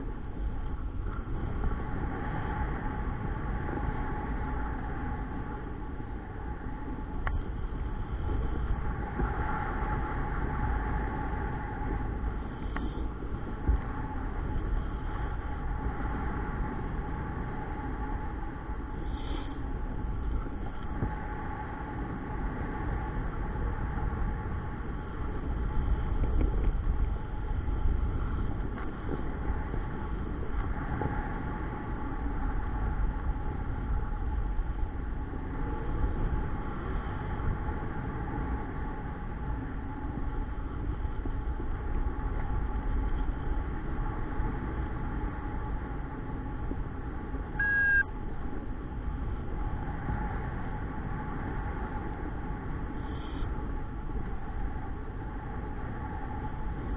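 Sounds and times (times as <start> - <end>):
faint hum: 0.0 - 56.9
wind buffeting microphone: 0.0 - 56.9
brief high tone: 47.6 - 48.1.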